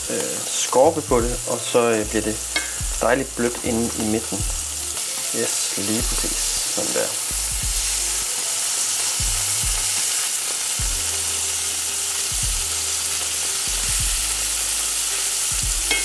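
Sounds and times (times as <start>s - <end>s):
cheese sizzling in hot oil: 0.0s - 16.0s.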